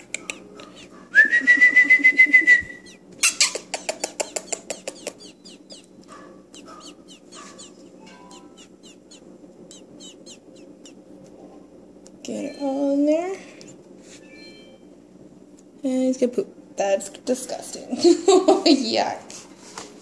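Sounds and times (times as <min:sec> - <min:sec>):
nestling bird chirping: 0:02.4 - 0:11.1.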